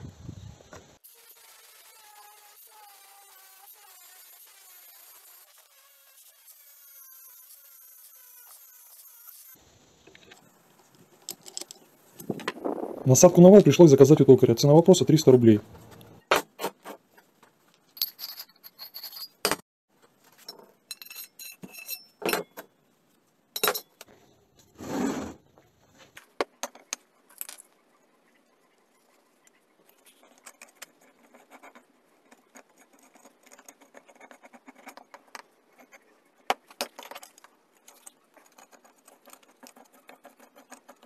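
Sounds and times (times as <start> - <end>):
paint marker scratching on steel: 28.9 - 36.4, 37.9 - 41.0.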